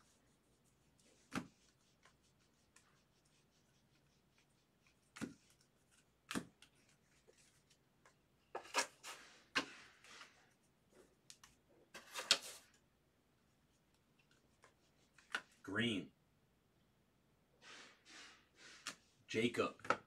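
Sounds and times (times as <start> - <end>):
cards rustling and sliding: 0.8 - 12.8, 14.3 - 15.6, 17.6 - 19.2.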